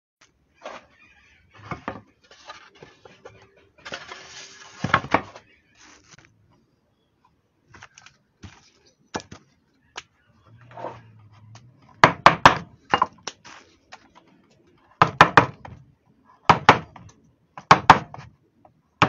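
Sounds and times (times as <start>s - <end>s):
wood knocking on wood: 1.6s - 2.1s
wood shavings rustling: 1.6s - 6.3s.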